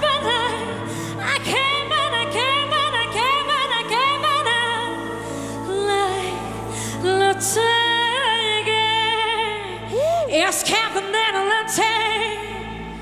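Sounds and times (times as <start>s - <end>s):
woman singing: 0.0s - 13.0s.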